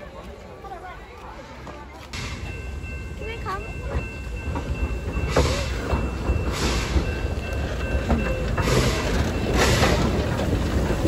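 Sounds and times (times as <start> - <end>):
steam locomotive rumble: 0.0 - 11.0
steam exhaust puffs: 5.1 - 7.8, 8.4 - 11.0.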